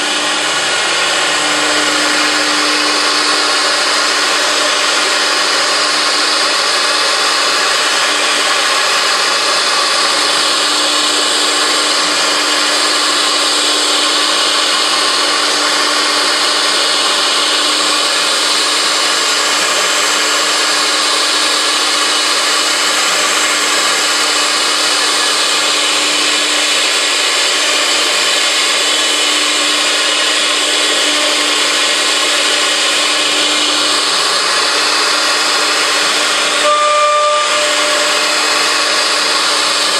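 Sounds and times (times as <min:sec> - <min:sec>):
router cutting wood: 0:00.0 - 0:39.9.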